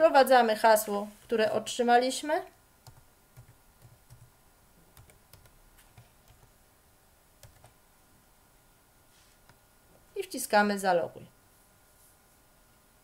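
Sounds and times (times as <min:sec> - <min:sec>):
keyboard keystrokes: 0:05.0 - 0:06.5, 0:07.4 - 0:07.8.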